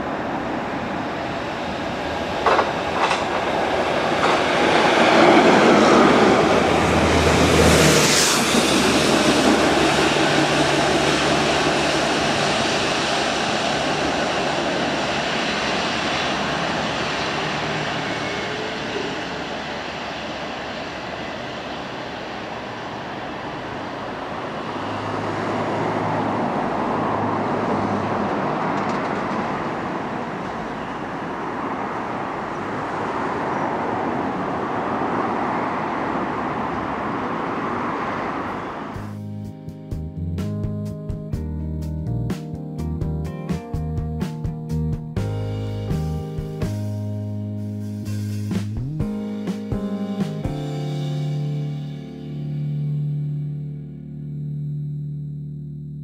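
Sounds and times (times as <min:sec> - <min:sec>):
train passing: 0:00.0 - 0:53.4
low steady hum: 0:51.3 - 0:56.0.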